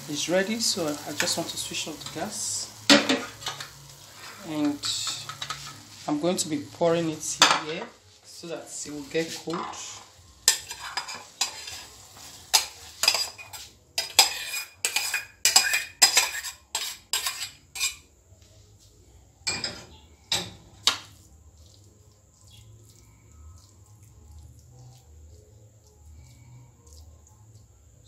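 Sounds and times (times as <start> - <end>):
spoon stirring soft filling: 8.5 - 18.0, 20.8 - 28.0
metal spoon clanking on pot: 12.5 - 18.0.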